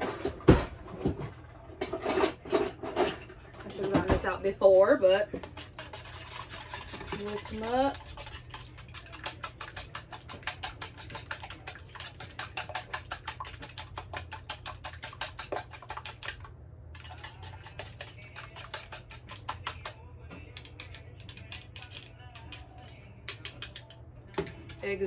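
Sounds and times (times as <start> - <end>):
whisk clicking against bowl: 5.4 - 25.0.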